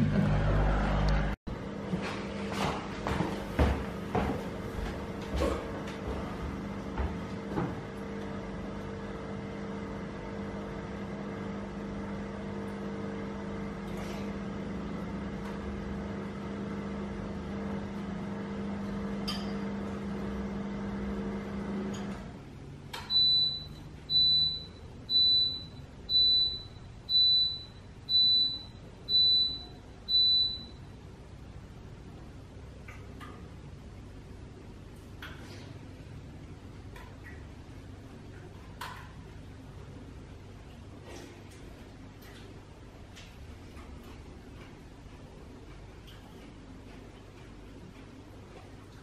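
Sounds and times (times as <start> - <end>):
appliance humming: 0.0 - 49.0.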